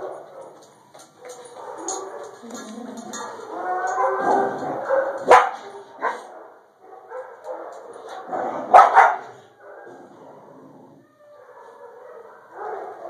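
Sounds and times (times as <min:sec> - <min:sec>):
puppy barking: 0:04.0 - 0:07.9, 0:08.7 - 0:09.3, 0:11.4 - 0:13.0.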